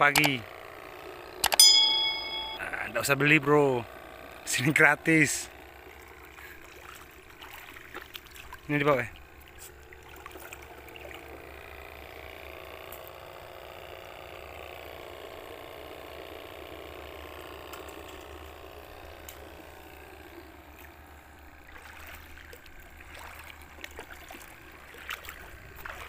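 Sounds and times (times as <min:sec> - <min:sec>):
low hum: 0:00.0 - 0:03.0
water trickling and swishing: 0:05.8 - 0:11.4, 0:20.8 - 0:26.0
water splashes: 0:06.6 - 0:11.2, 0:21.6 - 0:26.0.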